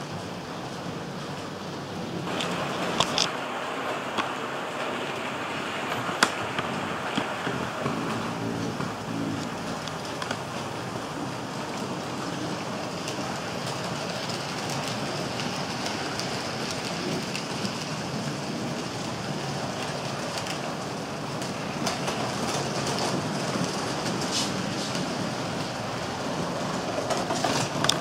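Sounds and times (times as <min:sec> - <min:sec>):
model train rolling: 0:00.0 - 0:28.0
wheels clicking on rails: 0:00.0 - 0:28.0.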